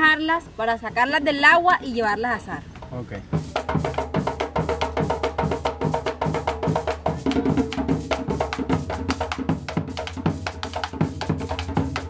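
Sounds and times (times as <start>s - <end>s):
music with quick drum beat: 2.1s - 12.0s.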